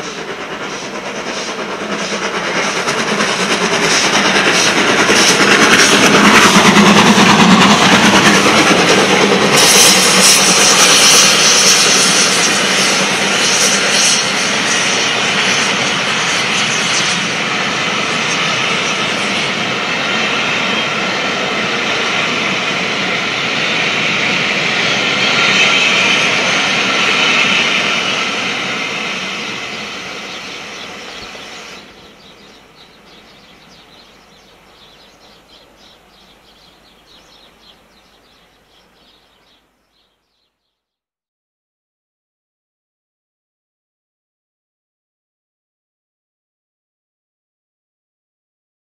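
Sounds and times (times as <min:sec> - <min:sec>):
steam locomotive working hard: 0:00.0 - 0:40.5
train wheels on rails: 0:00.0 - 0:40.5.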